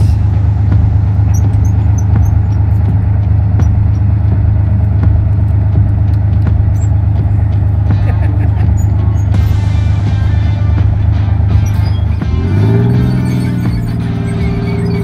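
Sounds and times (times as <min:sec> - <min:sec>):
tank engine droning: 0:00.0 - 0:15.0
faint high squeaks: 0:11.5 - 0:15.0.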